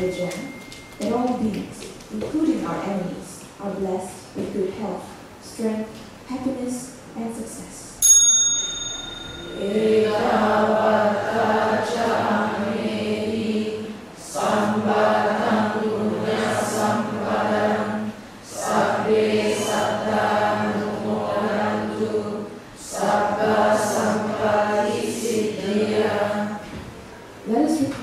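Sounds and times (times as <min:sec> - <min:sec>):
congregation chanting in unison: 0:09.5 - 0:26.9.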